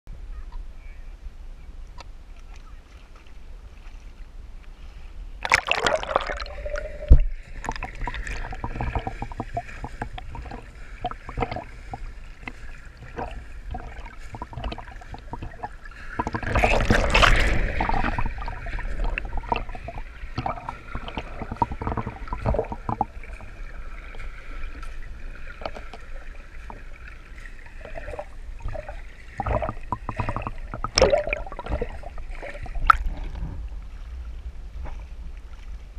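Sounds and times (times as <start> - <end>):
underwater drone: 4.1 - 35.9
muffled underwater clicks: 5.4 - 23.6, 27.9 - 33.4
water rushing: 5.4 - 34.6
water splashing: 5.4 - 35.9.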